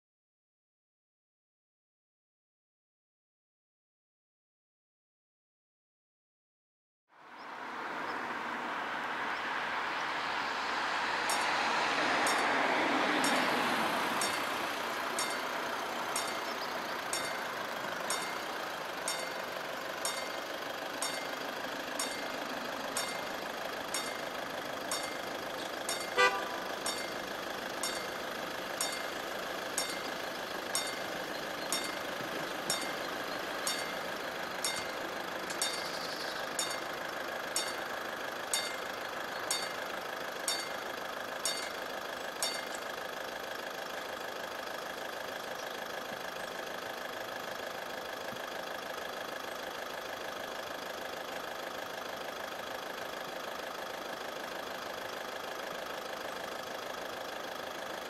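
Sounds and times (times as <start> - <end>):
road vehicle passing: 7.2 - 58.0
level crossing warning bell: 11.2 - 43.2
short horn toot: 26.2 - 26.7.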